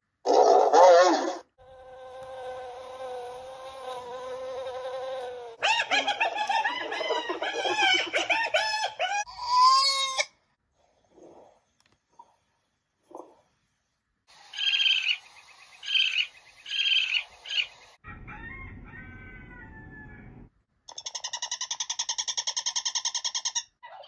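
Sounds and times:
cheetah chirping: 14.4s - 17.9s, 20.9s - 24.0s.

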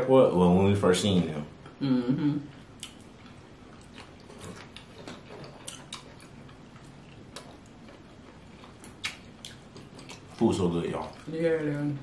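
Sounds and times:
quiet chewing: 2.5s - 12.0s
wet mouth clicks and smacks: 8.9s - 10.3s.

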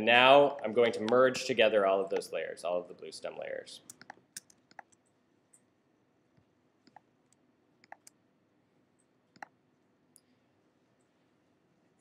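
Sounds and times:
faint computer mouse clicks: 3.9s - 5.7s, 6.8s - 8.2s, 9.0s - 10.3s.

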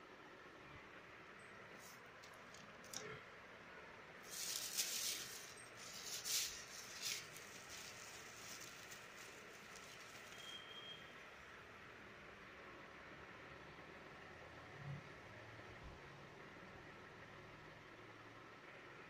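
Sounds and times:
plastic bags crinkling: 4.2s - 10.4s.

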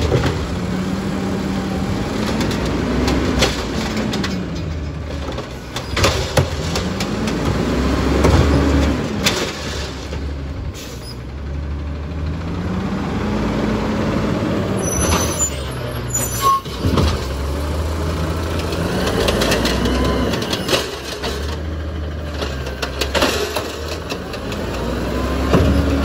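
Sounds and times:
garbage truck engine: 0.0s - 26.0s
air brake release: 10.8s - 11.2s.

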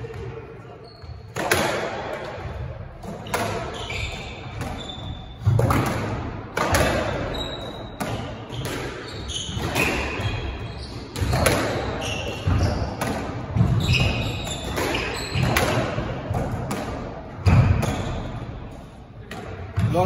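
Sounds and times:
squash ball hitting racquets and walls: 0.0s - 20.0s
shoes squeaking on wooden floor: 3.3s - 5.6s, 7.2s - 13.0s, 13.6s - 15.7s.

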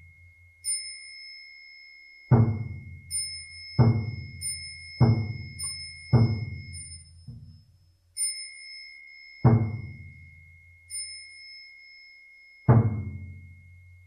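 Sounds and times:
small high-pitched bell ringing: 0.0s - 14.0s
deep temple drum strikes: 2.3s - 2.9s, 3.8s - 4.4s, 5.0s - 6.7s, 9.5s - 10.0s, 12.7s - 13.3s.

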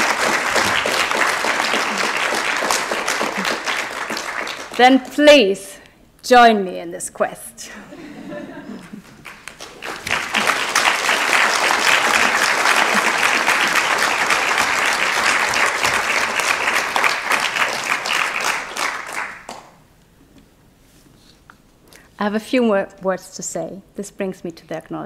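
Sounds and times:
audience applauding: 0.0s - 4.8s, 8.7s - 19.8s.

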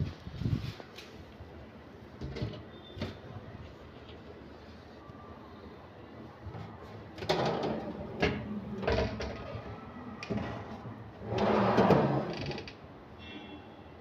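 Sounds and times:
wooden drawer sliding on runners: 10.3s - 12.6s.

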